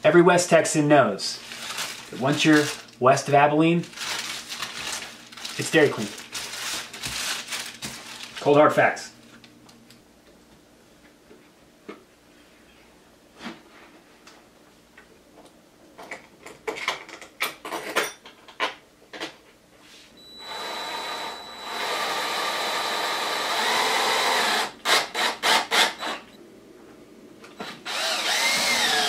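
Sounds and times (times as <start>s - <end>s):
cordless drill driving screws: 20.4s - 26.2s, 27.8s - 29.0s.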